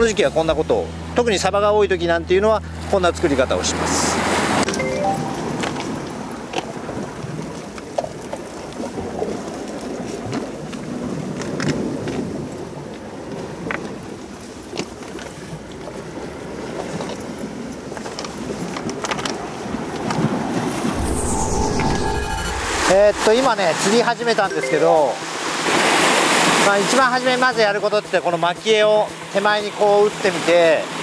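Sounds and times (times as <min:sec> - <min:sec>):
small clicks and splashes: 0:16.7 - 0:20.3.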